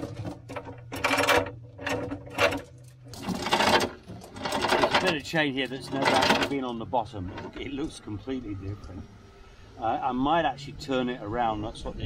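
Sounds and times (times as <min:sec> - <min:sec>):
anchor chain rattling and clanking: 0:00.0 - 0:07.6.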